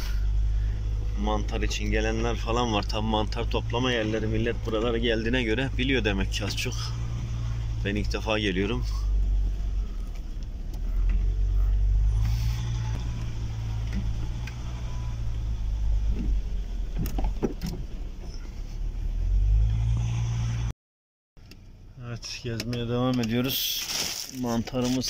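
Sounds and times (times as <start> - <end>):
car engine and tyres rumbling: 0.0 - 20.8, 21.4 - 25.0
knocks and rattles: 16.1 - 18.4.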